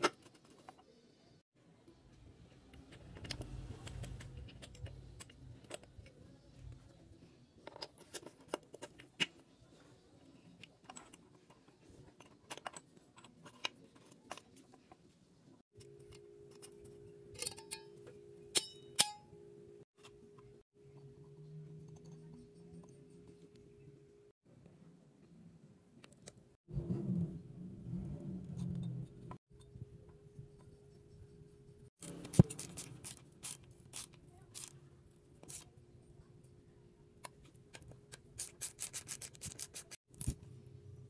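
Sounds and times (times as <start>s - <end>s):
metal parts clicking and tapping: 15.8s - 19.2s.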